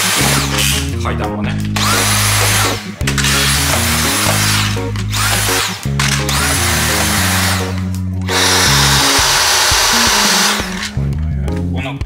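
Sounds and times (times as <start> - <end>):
background music: 0.0 - 12.0
cordless vacuum motor whining: 6.3 - 11.0.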